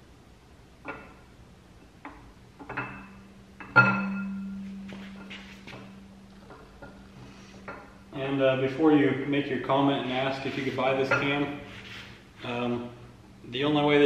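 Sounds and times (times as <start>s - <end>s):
ringing metallic tone: 2.8s - 7.0s.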